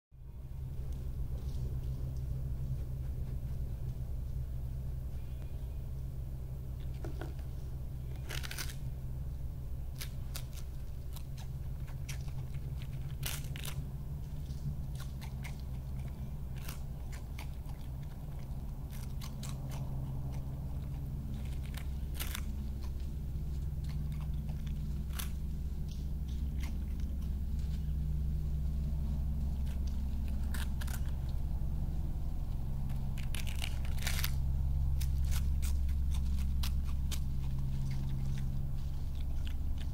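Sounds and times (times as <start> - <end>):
steady low hum: 0.1 - 39.9
animal chewing crunchy snack: 0.4 - 39.9.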